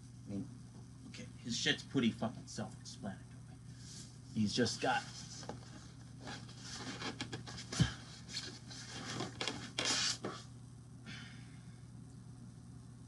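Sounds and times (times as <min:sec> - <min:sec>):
packaging rustling and scraping: 0:04.9 - 0:10.5.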